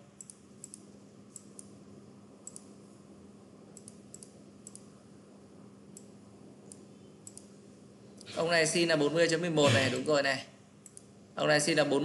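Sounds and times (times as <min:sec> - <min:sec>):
faint low hum: 0:00.0 - 0:12.0
computer mouse clicking: 0:00.2 - 0:01.8, 0:02.4 - 0:02.8, 0:03.7 - 0:04.9, 0:05.9 - 0:07.5, 0:10.8 - 0:11.1.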